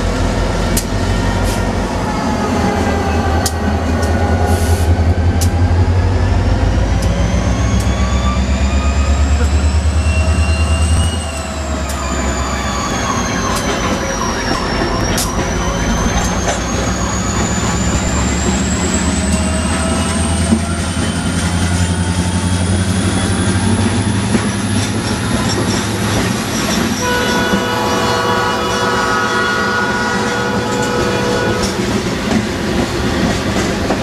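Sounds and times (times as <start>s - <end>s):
locomotive engine rumble: 0.0s - 34.0s
locomotive air horn: 27.0s - 32.0s.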